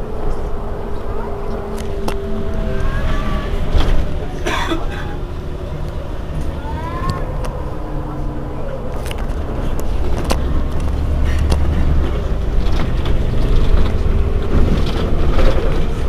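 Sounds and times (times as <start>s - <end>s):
bus engine idling: 0.0s - 16.0s.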